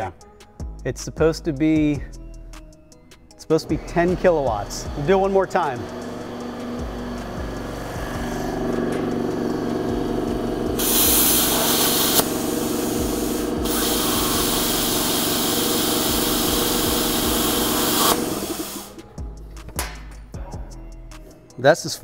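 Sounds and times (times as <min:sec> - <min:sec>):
plasma cutter humming: 0:04.2 - 0:19.2
plasma arc hissing: 0:04.3 - 0:19.2.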